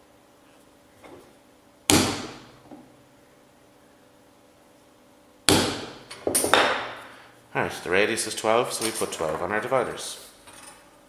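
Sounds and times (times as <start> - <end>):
punch striking metal sheet: 1.9 - 2.5, 5.5 - 6.0.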